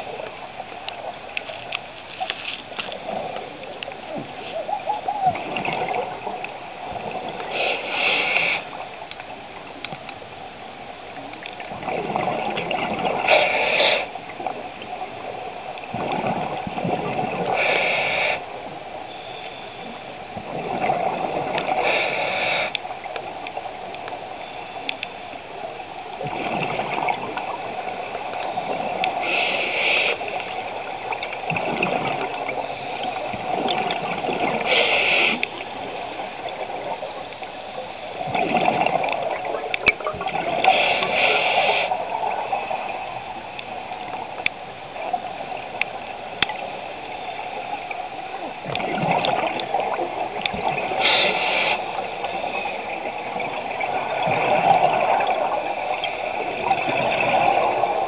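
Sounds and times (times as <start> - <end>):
exhaled bubbles gurgling: 0.0 - 8.9, 11.2 - 18.7, 20.3 - 23.7, 25.6 - 58.0
regulator hiss on inhale: 7.4 - 8.8, 13.2 - 14.2, 17.5 - 18.6, 21.8 - 22.9, 29.1 - 30.5, 34.6 - 35.6, 40.6 - 42.1, 50.9 - 53.0.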